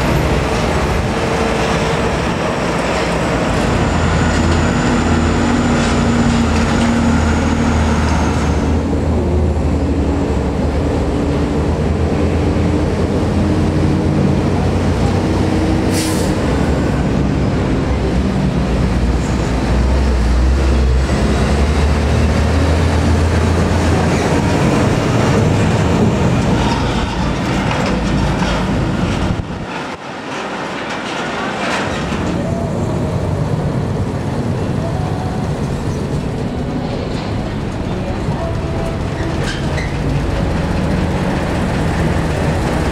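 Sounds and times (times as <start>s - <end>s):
diesel truck engine rumble: 0.0s - 42.9s
brief air hiss: 15.9s - 16.4s.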